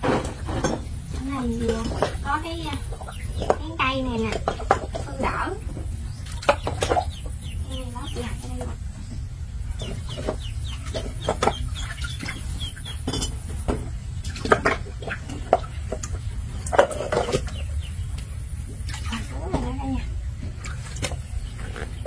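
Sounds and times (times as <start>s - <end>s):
wooden plank and basin knocking: 0.0s - 7.2s, 9.8s - 12.4s
chickens clucking: 0.0s - 22.0s.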